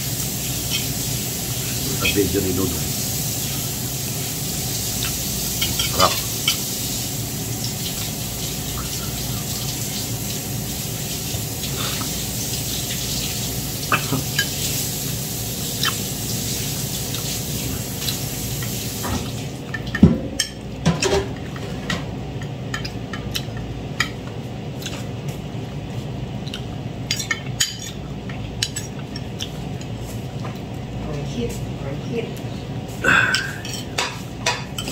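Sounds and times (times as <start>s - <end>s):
tap water running: 0.0s - 22.0s.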